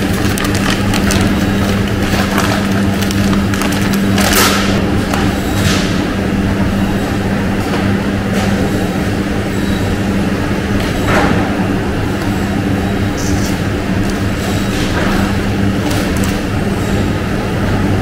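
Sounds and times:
plastic bags rustling and knocking: 0.0 - 5.8
electric machinery hum: 0.0 - 18.0.

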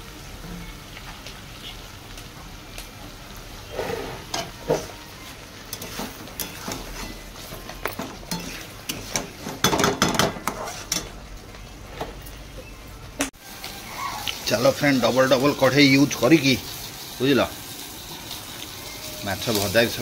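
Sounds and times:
food sizzling in a pan: 0.0 - 12.0, 13.4 - 20.0
metal spatula scraping a pan: 3.6 - 5.0, 5.7 - 11.1.

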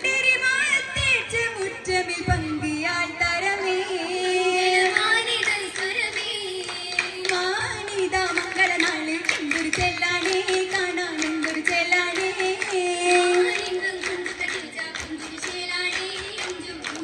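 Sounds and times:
girls singing in unison: 0.0 - 17.0
rhythmic hand claps: 4.6 - 17.0.

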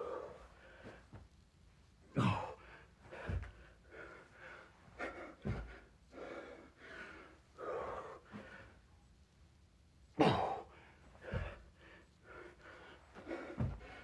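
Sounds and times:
person breathing hard and gasping: 0.0 - 1.1, 2.2 - 8.8, 10.2 - 14.0
thuds on floor: 3.2 - 3.6, 5.4 - 5.8, 11.2 - 11.6, 13.5 - 14.0.

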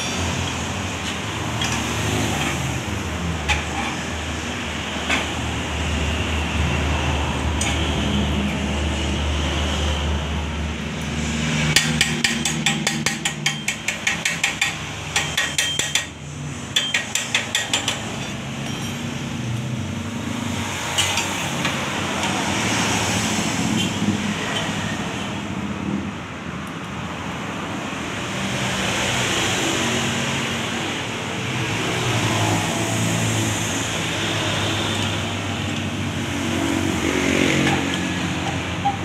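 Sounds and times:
metal tapping on muffler: 11.7 - 18.9.

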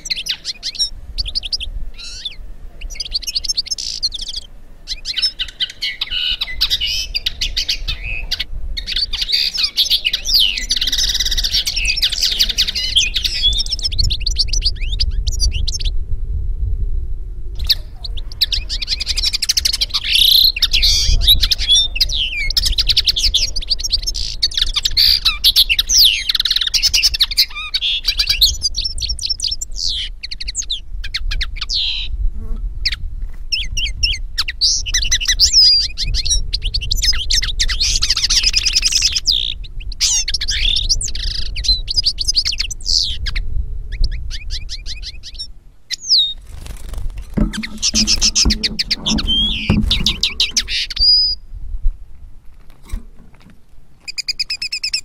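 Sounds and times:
finch twittering: 46.1 - 51.4.

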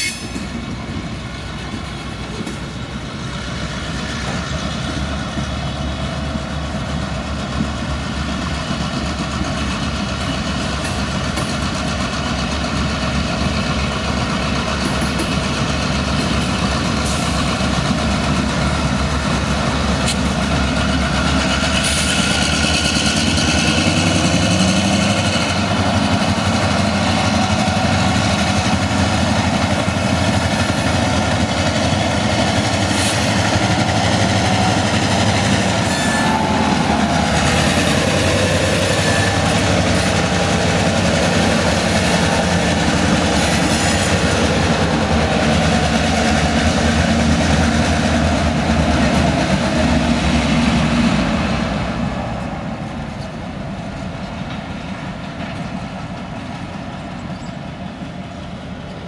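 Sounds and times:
diesel locomotive engines: 0.0 - 59.0
freight cars rolling on rails: 0.0 - 59.0.

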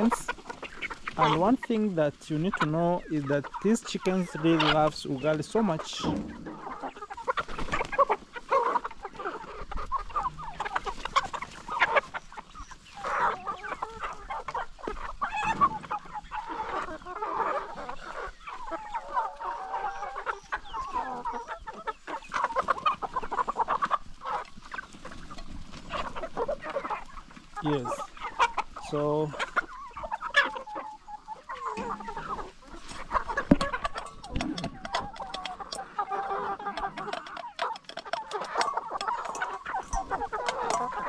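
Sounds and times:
flock of chickens clucking: 0.0 - 41.0.

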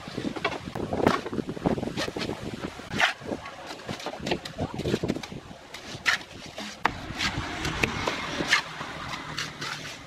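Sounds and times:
trowel scraping wet mortar: 2.9 - 10.0.

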